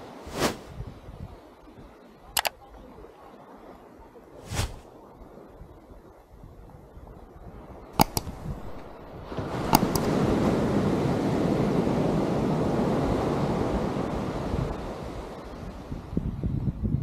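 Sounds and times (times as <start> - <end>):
wave breaking on sand: 0.0 - 0.7, 4.4 - 4.9, 8.4 - 15.8
wind on microphone: 0.0 - 17.0
sharp clicks: 2.4 - 2.6, 8.0 - 8.9, 9.6 - 10.1.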